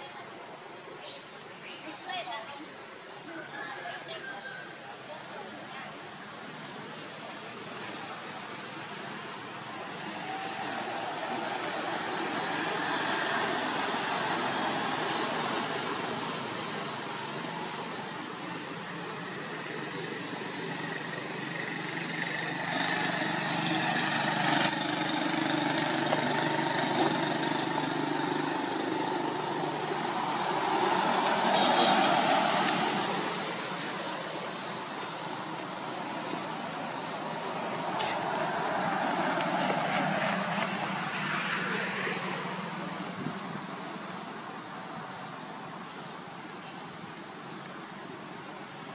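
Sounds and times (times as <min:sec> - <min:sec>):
motor vehicles passing: 0:06.6 - 0:44.4.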